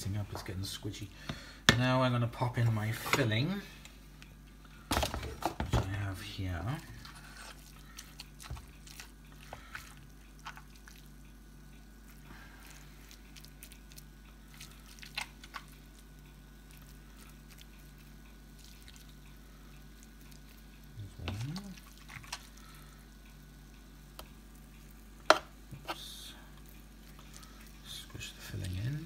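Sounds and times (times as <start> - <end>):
faint steady hum: 0.0 - 29.0
spoon squishing pie filling: 6.0 - 23.2, 25.8 - 29.0.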